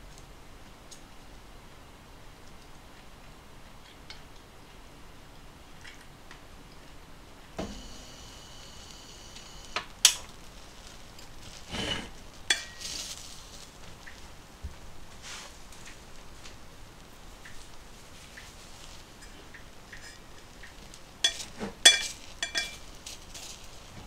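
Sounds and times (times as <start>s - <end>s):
rice paddle scraping metal pot: 11.5s - 13.1s.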